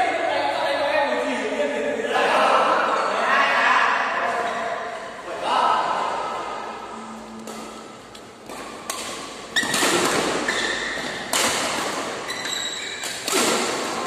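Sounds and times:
rackets hitting shuttlecock: 7.4 - 14.0.

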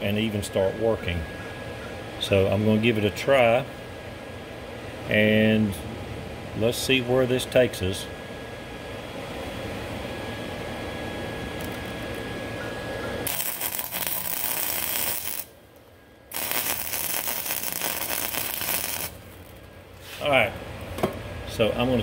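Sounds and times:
welder arc crackling: 13.2 - 19.8.

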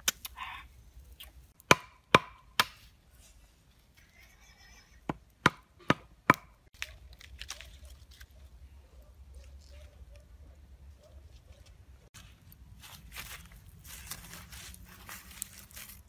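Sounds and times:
wooden stake hammering knocks: 1.6 - 2.8, 5.1 - 6.6.

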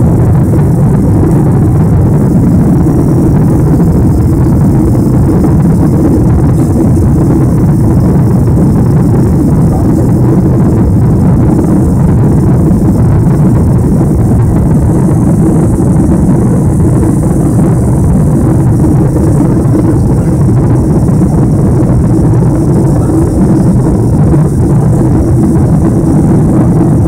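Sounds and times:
jet engine and airflow noise: 0.0 - 27.0.

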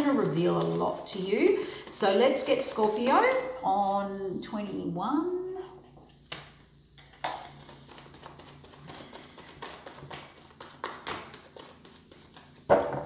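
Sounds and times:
cards being shuffled: 6.1 - 13.0.

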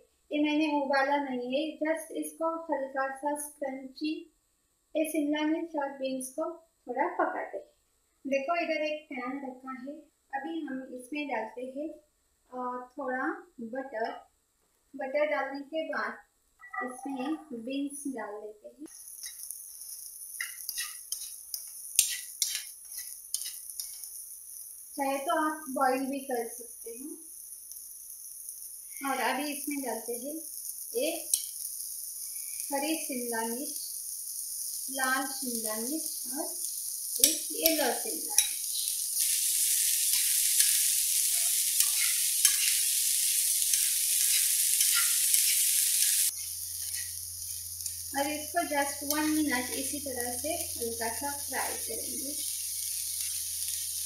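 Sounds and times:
beans sizzling in a frying pan: 18.8 - 54.0
metal spoon scraping a pan: 19.1 - 24.2, 30.6 - 31.8, 36.6 - 48.0.

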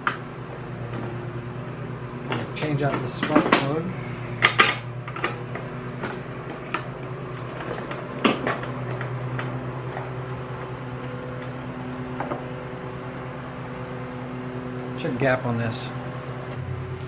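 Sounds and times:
steady low hum: 0.0 - 17.0
hand tools clicking on engine: 2.2 - 3.8.

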